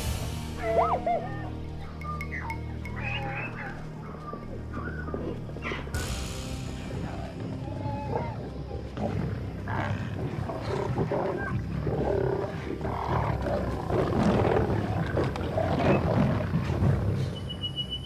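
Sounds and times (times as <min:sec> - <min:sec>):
lions growling: 0:02.9 - 0:06.0, 0:06.8 - 0:17.9.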